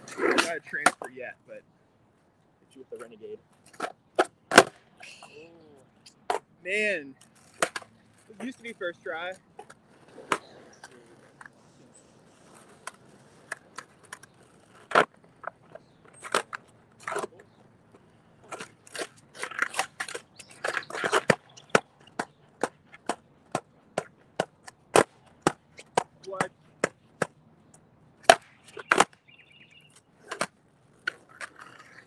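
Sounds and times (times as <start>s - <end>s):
skateboard clacking on hard ground: 7.2s - 8.4s, 9.4s - 29.2s, 30.1s - 32.0s.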